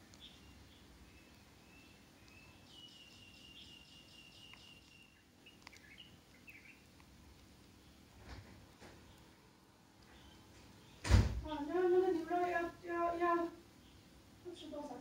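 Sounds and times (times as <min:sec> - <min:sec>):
faint high chirping: 0:00.0 - 0:06.9, 0:10.0 - 0:15.0
faint clicks: 0:02.2 - 0:02.5, 0:04.4 - 0:07.8.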